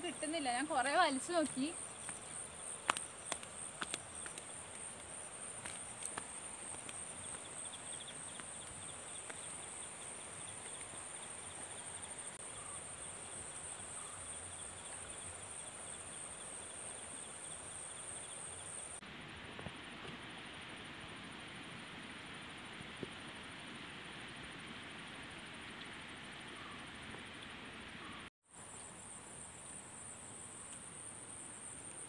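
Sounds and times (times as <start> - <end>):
fast pulsing insect trill: 0.0 - 19.0
insects chirring drone: 0.0 - 32.0.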